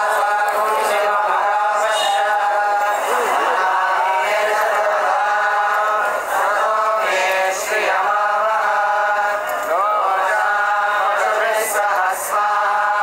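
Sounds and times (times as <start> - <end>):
men chanting in unison: 0.0 - 13.0.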